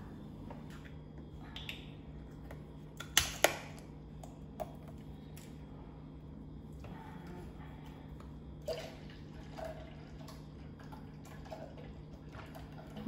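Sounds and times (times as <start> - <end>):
steady low hum: 0.0 - 13.0
milk pouring and splashing: 8.6 - 13.0.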